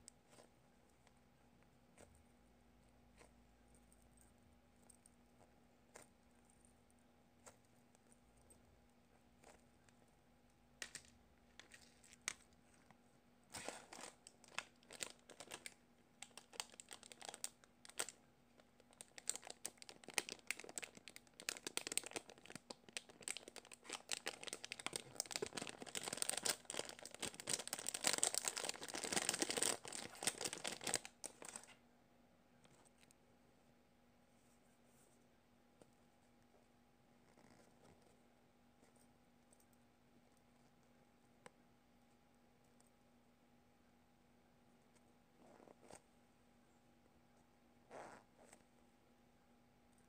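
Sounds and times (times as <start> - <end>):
plastic bag crinkling: 10.8 - 12.8, 13.5 - 31.7.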